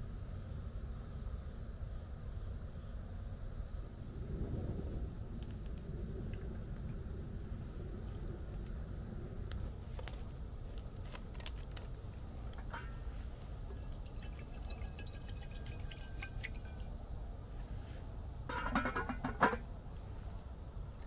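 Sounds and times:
rain dripping ticks: 0:13.8 - 0:16.9.

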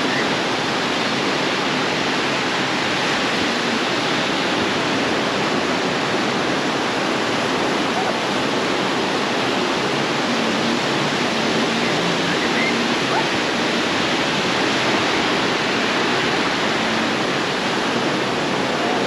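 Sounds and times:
waves washing ashore: 0:00.0 - 0:19.0
faint voices: 0:07.6 - 0:19.0.

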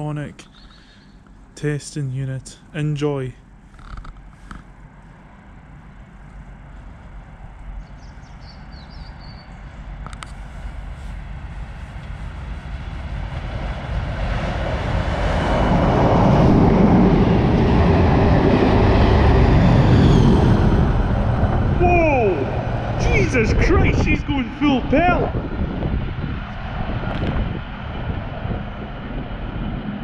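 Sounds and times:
diesel locomotive engine: 0:00.0 - 0:30.0
train wheels on rails: 0:09.6 - 0:21.7.

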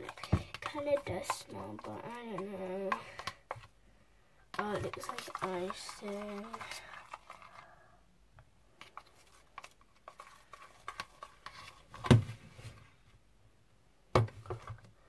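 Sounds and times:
pen scraping plastic tub: 0:00.0 - 0:03.7, 0:04.5 - 0:07.6, 0:08.8 - 0:12.2.

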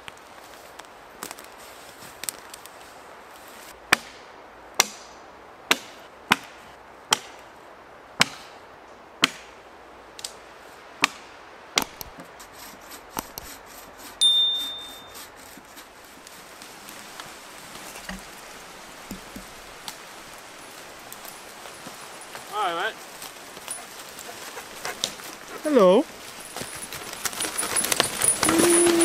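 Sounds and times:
axe chopping wood: 0:05.7 - 0:06.5, 0:07.1 - 0:07.3, 0:08.2 - 0:08.5, 0:09.2 - 0:09.5, 0:11.0 - 0:11.2
short ringing ding: 0:14.2 - 0:15.2.

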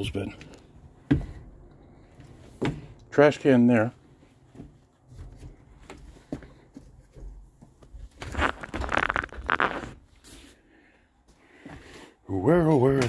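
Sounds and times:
footsteps on bus floor: 0:01.0 - 0:03.0, 0:04.1 - 0:08.7
camera and clothing rustling: 0:04.8 - 0:10.4.

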